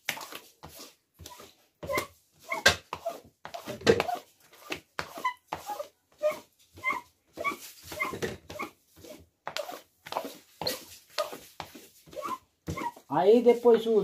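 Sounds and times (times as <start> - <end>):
squeegee squeaking on wet steel: 1.3 - 8.7, 12.1 - 13.1.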